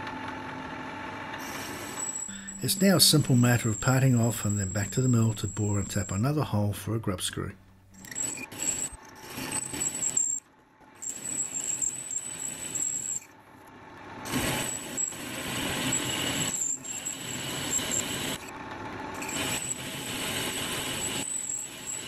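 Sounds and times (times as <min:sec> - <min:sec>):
metal lathe cutting: 0:01.4 - 0:06.3, 0:08.0 - 0:10.4, 0:11.0 - 0:13.3, 0:14.3 - 0:18.5, 0:19.2 - 0:22.0.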